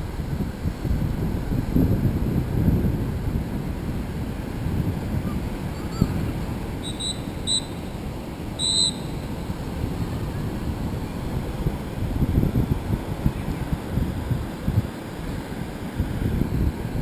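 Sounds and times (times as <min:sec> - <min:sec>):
surf washing: 0:00.0 - 0:17.0
wind rumbling on microphone: 0:00.0 - 0:17.0
short high-pitched chirps: 0:06.8 - 0:07.8, 0:08.6 - 0:09.3.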